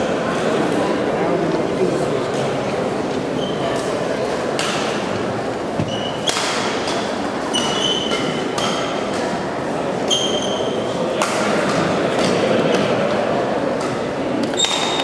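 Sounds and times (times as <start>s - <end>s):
spectator murmur: 0.0s - 4.3s
shoes squeaking on court floor: 3.2s - 3.9s, 5.7s - 6.4s, 7.4s - 9.0s, 10.0s - 10.9s
rackets hitting shuttlecock: 4.5s - 5.2s, 6.1s - 9.6s, 11.2s - 12.9s.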